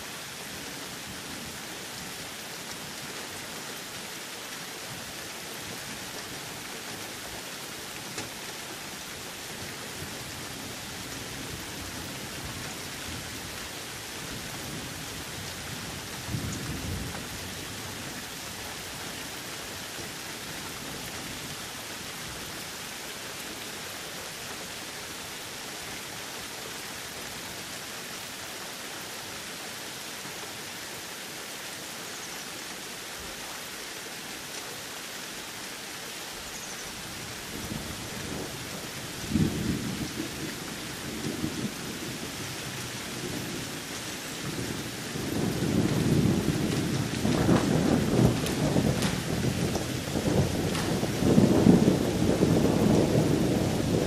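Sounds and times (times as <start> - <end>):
steady rain falling: 0.0 - 54.0
low roll of thunder: 44.4 - 54.0.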